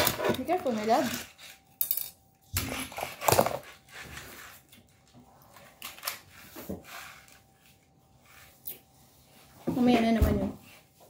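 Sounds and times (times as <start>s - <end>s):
plastic rustling: 0.0s - 1.7s.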